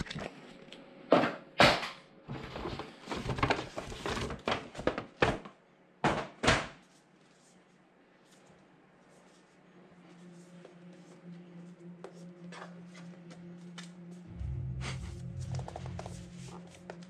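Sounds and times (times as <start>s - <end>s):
paper bag rustling and crinkling: 2.3s - 5.4s.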